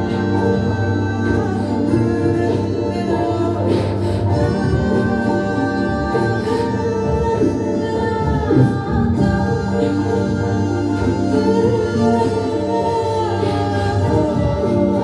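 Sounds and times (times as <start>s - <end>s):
ambient music with held tones: 0.0s - 15.0s.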